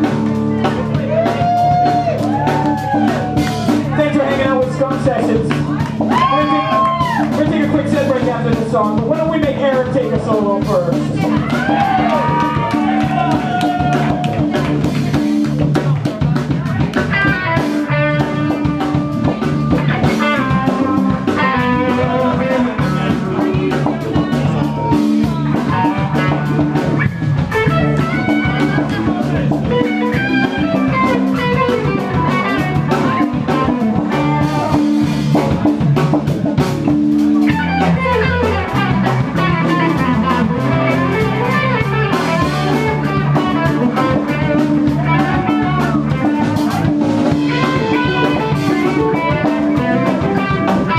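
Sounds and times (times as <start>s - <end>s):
bass: 0.0s - 50.9s
drum kit: 0.0s - 50.9s
electric guitar leads: 0.0s - 50.9s.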